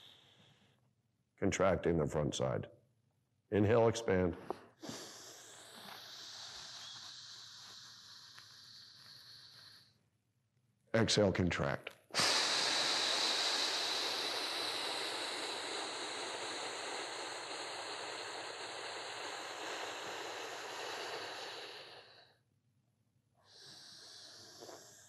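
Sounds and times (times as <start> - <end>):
man exhaling slowly: 0.0 - 0.7, 4.8 - 10.0, 12.2 - 22.4.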